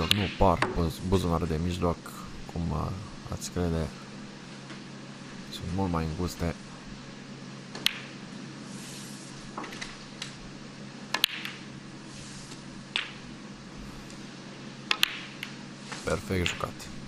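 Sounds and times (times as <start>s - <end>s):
snooker balls clicking: 0.0s - 0.8s, 7.7s - 8.2s, 11.1s - 11.7s, 12.9s - 13.4s, 14.8s - 15.6s, 16.3s - 16.9s.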